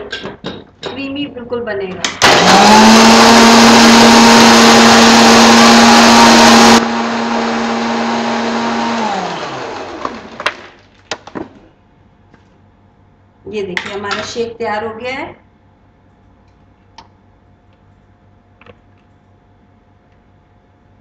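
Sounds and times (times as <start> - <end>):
mixer grinder motor: 2.2 - 10.5.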